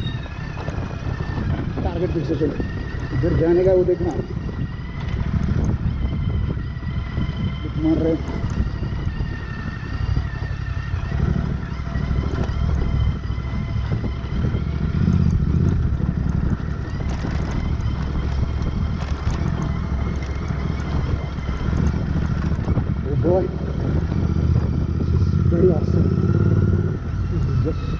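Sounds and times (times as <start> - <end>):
motorcycle engine running: 0.0 - 27.9
wind buffeting microphone: 0.0 - 27.9.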